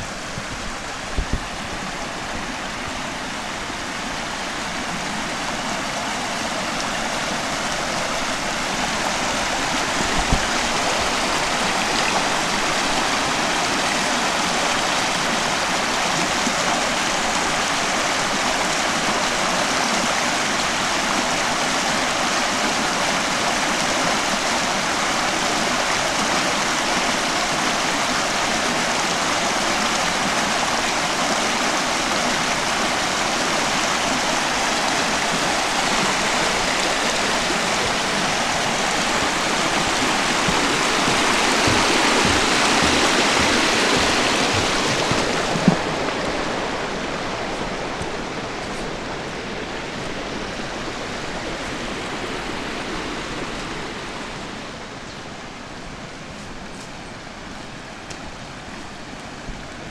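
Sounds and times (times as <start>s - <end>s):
stream rushing over stones: 0.0s - 59.9s.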